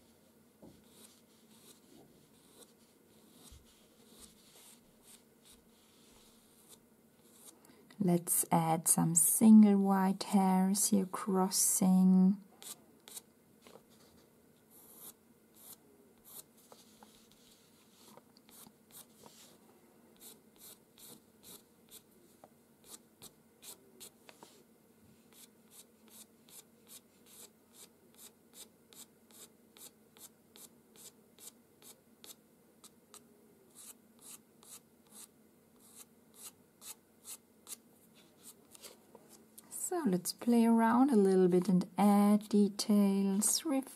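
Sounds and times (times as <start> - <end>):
pencil scratching on paper: 0.8 - 7.6, 12.6 - 13.2, 13.9 - 19.5, 20.2 - 22.1, 22.8 - 24.6, 25.3 - 38.9.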